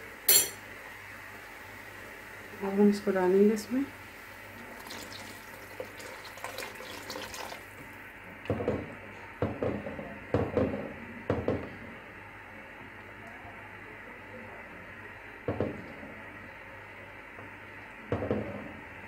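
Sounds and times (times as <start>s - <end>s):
slurry pouring into soup: 4.5s - 7.8s.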